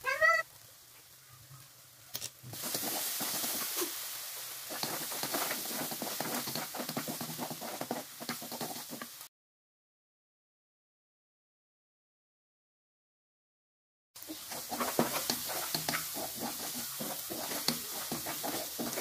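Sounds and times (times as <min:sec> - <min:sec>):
spice paste sizzling in wok: 0:00.4 - 0:09.3, 0:14.2 - 0:19.0
spatula scraping wok: 0:02.5 - 0:09.3, 0:14.2 - 0:19.0.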